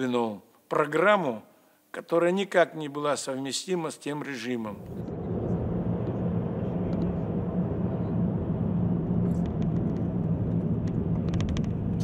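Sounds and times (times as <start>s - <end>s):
car engine and road drone: 4.8s - 12.0s.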